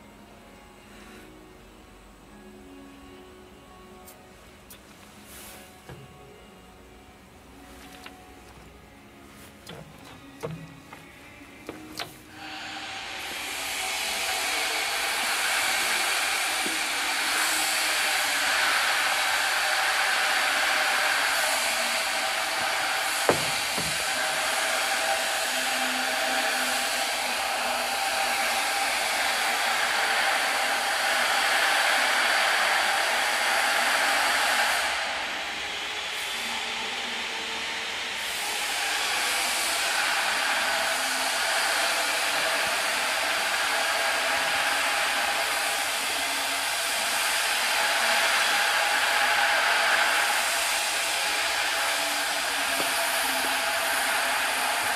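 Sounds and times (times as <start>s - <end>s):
faint steady hum: 0.0s - 34.2s
industrial machinery hissing: 0.0s - 54.9s
brief knock: 23.3s - 24.1s.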